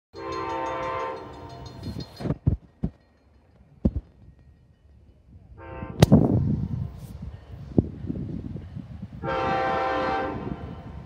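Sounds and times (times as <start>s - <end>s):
train horn chord: 0.2s - 1.7s, 5.6s - 6.0s, 9.2s - 11.0s
sharp knocks: 3.8s - 4.1s.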